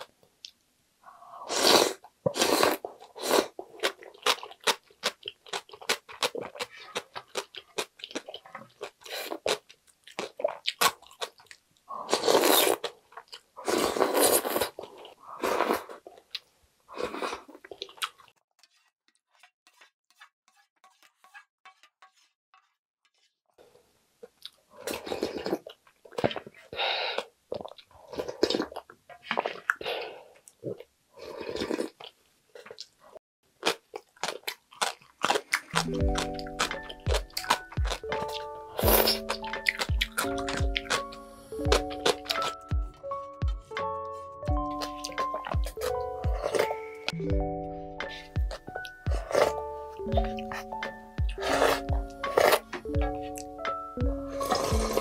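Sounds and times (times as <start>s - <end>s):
soup slurping: 1.4s - 3.6s, 12.0s - 12.9s, 13.6s - 16.0s, 35.8s - 41.1s, 48.0s - 52.8s, 54.2s - 55.0s
wet chewing clicks: 3.8s - 13.6s, 17.1s - 18.4s, 33.6s - 42.7s.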